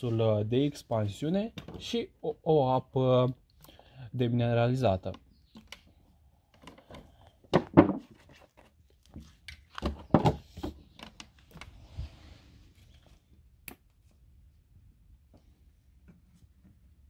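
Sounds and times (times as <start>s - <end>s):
plastic bottles crinkling and knocking: 6.6s - 11.7s.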